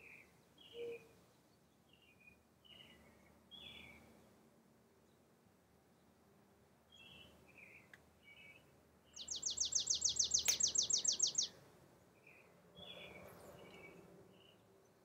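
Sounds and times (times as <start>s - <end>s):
songbird trill: 0.0s - 4.1s, 6.9s - 11.6s
soft bird chirps: 6.9s - 11.5s.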